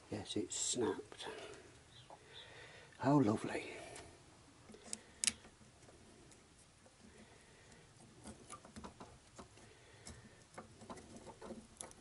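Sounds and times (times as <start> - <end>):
small parts clicking and tapping: 4.7 - 12.0.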